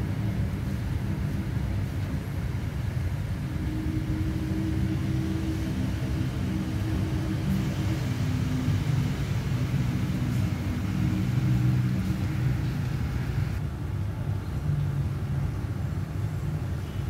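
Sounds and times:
low engine rumble: 0.0 - 16.7
humming tone: 3.5 - 13.6.

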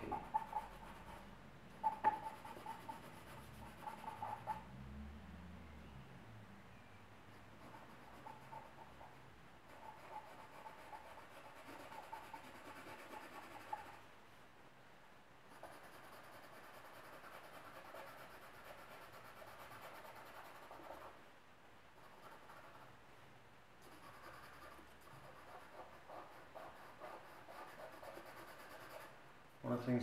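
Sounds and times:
pencil scratching on paper: 0.0 - 4.6, 7.6 - 14.0, 15.5 - 21.2, 22.0 - 23.0, 23.8 - 29.2.

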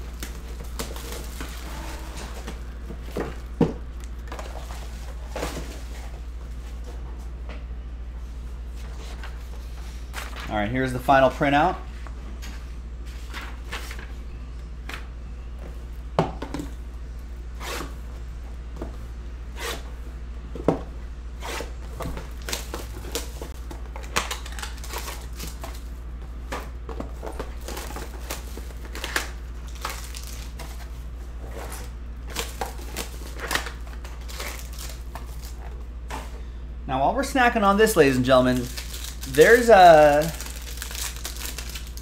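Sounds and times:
plastic wrap crinkling and tearing: 24.0 - 25.8, 27.5 - 30.6, 32.3 - 35.6, 38.1 - 42.0.

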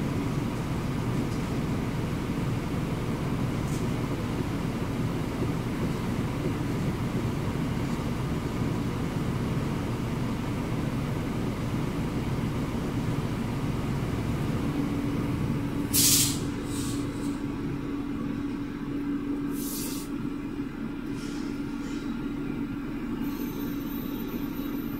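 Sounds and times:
truck engine running: 0.0 - 24.9
air brake hiss: 15.9 - 17.4, 19.5 - 20.2, 21.1 - 22.2.

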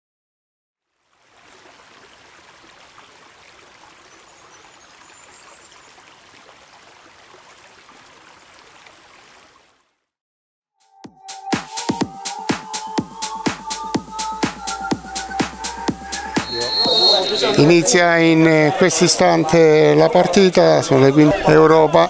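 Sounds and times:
running water: 0.8 - 10.1.

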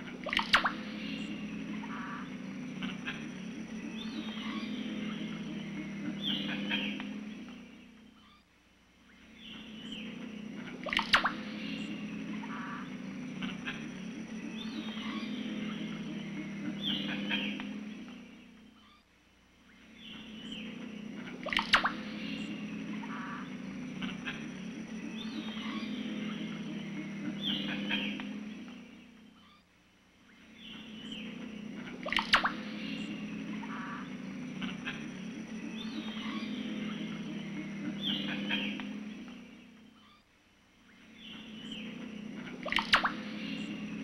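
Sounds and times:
birds chirping and calling: 0.0 - 19.0, 19.6 - 29.6, 30.2 - 44.0
low buzzing chorus: 0.0 - 44.0.

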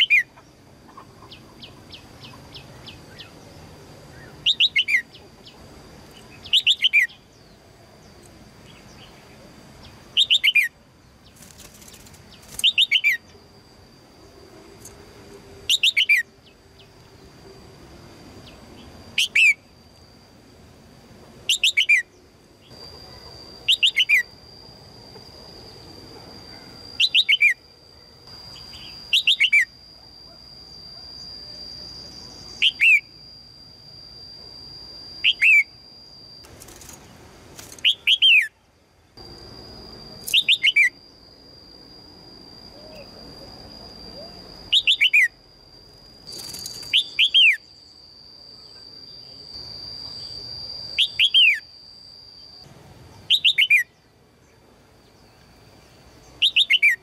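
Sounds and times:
thin high tone: 0.0 - 57.0
bird chirps sweeping downward: 4.1 - 5.6, 6.2 - 9.2, 9.8 - 13.3, 15.7 - 16.9, 18.4 - 19.7, 21.5 - 22.8, 23.6 - 24.4, 26.5 - 27.7, 28.5 - 29.8, 32.4 - 33.2, 35.2 - 35.8, 37.8 - 38.6, 40.2 - 41.0, 42.7 - 45.4, 46.3 - 47.9, 50.1 - 51.8, 52.4 - 54.0, 55.2 - 57.0.

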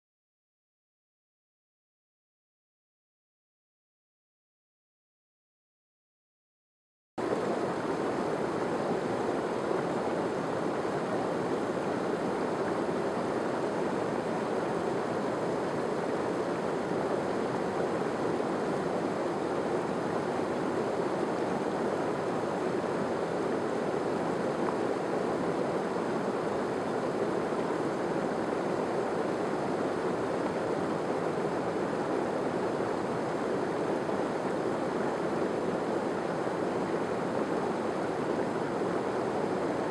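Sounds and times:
stream cascading over rocks: 7.2 - 39.9.

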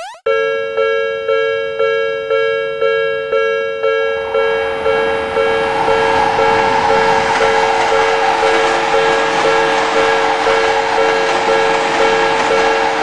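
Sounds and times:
level-crossing warning bell: 0.3 - 13.0
train running noise: 4.1 - 13.0.

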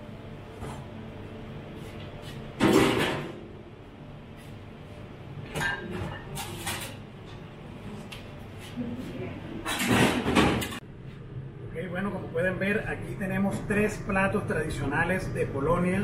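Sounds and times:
low steady hum: 10.6 - 16.0.

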